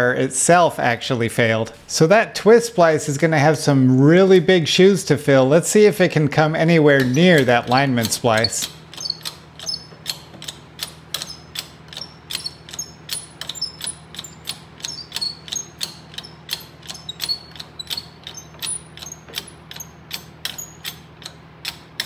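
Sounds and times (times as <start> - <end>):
ratchet clicking with ring: 7.0 - 22.0.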